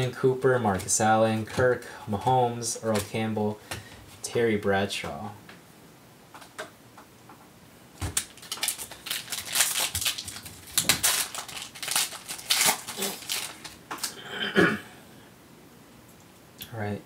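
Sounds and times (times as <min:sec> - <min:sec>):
foil wrapper tearing and crinkling: 0:08.0 - 0:14.2.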